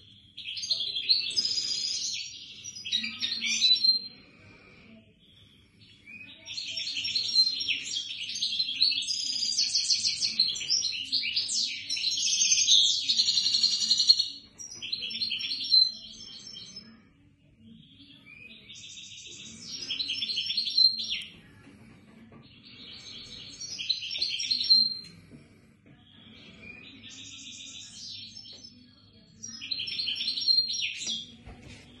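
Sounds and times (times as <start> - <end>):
songbird trilling and chirping: 5.9 - 17.0, 17.7 - 21.4, 22.5 - 25.3, 26.0 - 31.4.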